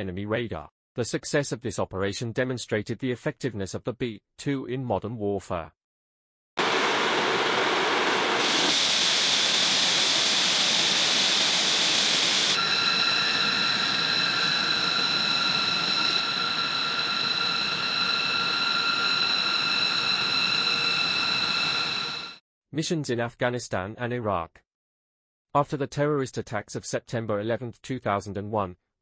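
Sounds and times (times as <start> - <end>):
high turbine whine: 6.6 - 22.4
jet engines hissing roar: 6.6 - 22.4.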